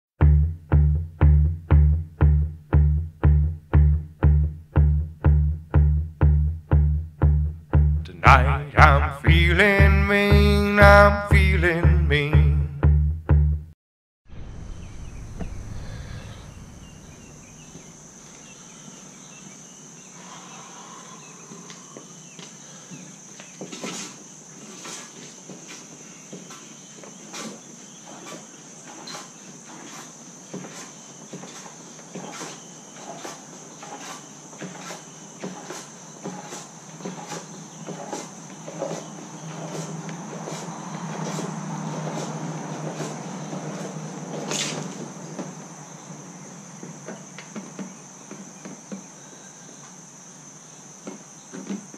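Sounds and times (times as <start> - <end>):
high insect drone: 14.4 - 51.9.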